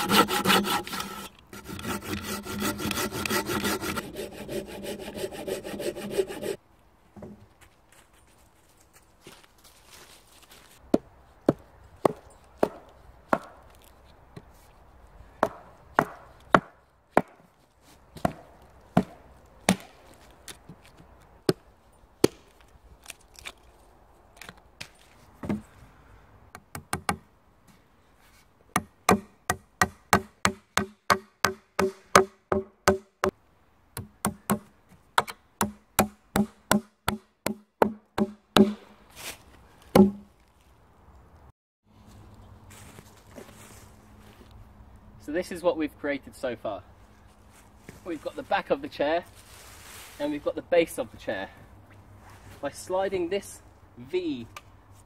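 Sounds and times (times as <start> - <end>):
axe chopping wood: 10.9 - 13.6, 15.4 - 17.5, 18.2 - 18.4, 19.0 - 20.0, 22.2 - 22.5, 28.8 - 33.1, 34.0 - 38.9, 39.9 - 40.3
hammer striking nails: 28.8 - 33.1.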